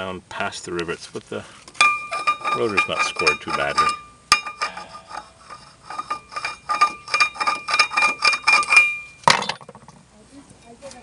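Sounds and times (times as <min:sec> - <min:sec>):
metal clank: 0:01.8 - 0:10.0.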